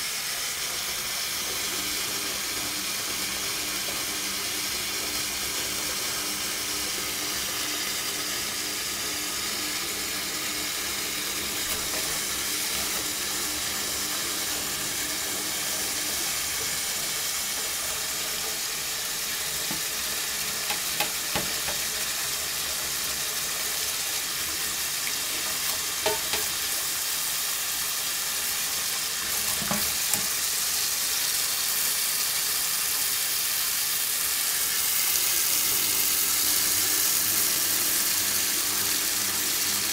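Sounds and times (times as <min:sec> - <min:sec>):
tap running into metal sink: 0:11.2 - 0:23.2, 0:24.9 - 0:26.9, 0:29.2 - 0:30.5.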